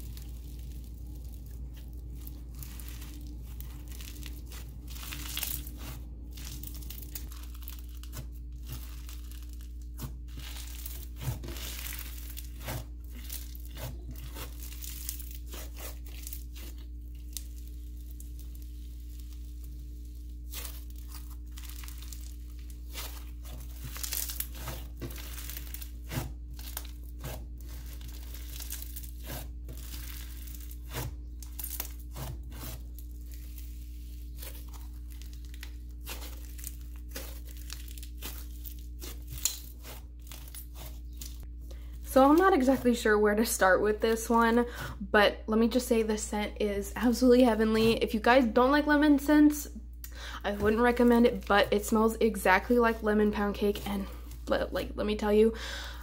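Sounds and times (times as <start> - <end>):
slime crackling and popping: 0.0 - 41.4
steady low hum: 0.0 - 56.0.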